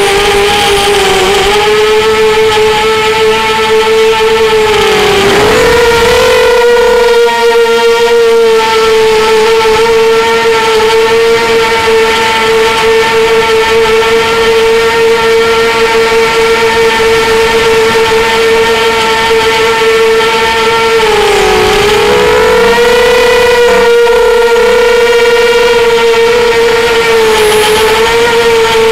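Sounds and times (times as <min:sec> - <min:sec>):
drone motors whining: 0:00.8 - 0:07.6, 0:20.5 - 0:28.9.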